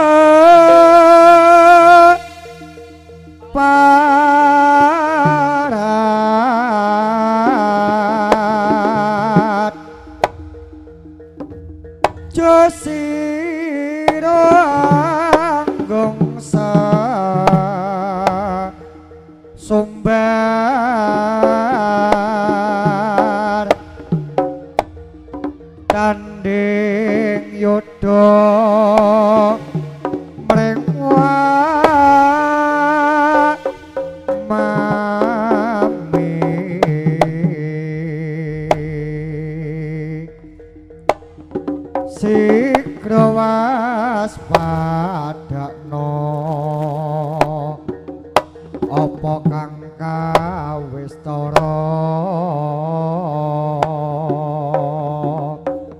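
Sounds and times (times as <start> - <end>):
held low tones: 0.0 - 55.9
ornamented lead melody: 0.0 - 55.9
sharp drum strokes: 7.4 - 37.9, 38.6 - 52.2.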